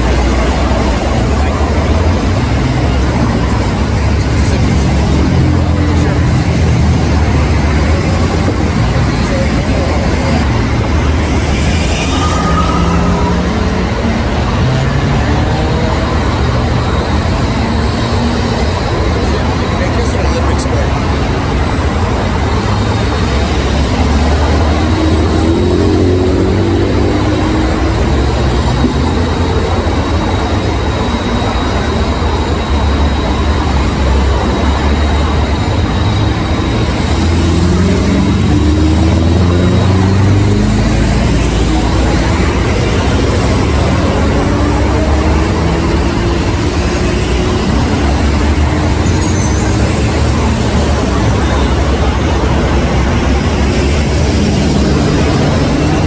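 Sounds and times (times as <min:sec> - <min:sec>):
diesel truck engine revving: 0:20.9 - 0:56.0.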